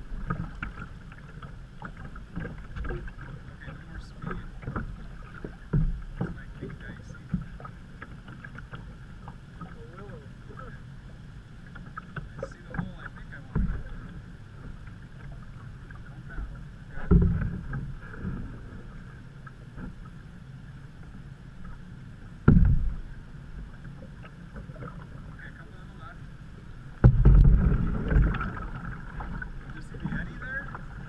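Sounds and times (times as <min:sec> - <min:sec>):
low thumps on canoe: 0:00.0 - 0:10.0, 0:11.7 - 0:18.8, 0:22.4 - 0:25.5, 0:26.9 - 0:31.0
paddle water swishing and dripping: 0:00.0 - 0:31.0.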